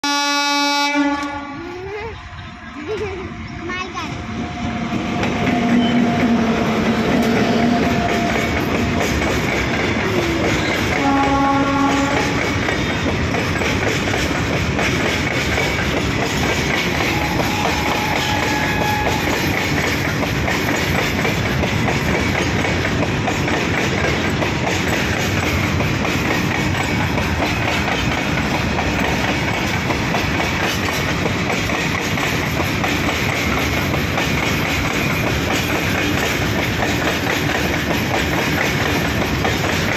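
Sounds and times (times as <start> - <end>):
train horn: 0.0 - 1.8, 5.5 - 8.6, 10.2 - 12.6, 17.0 - 19.6
electric locomotive passing: 0.0 - 39.9.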